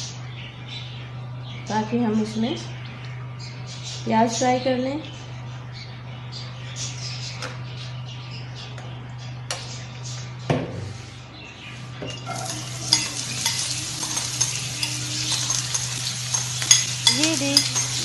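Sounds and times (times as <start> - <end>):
spoon scraping a pan: 12.1 - 18.0
onions sizzling in oil: 12.2 - 18.0.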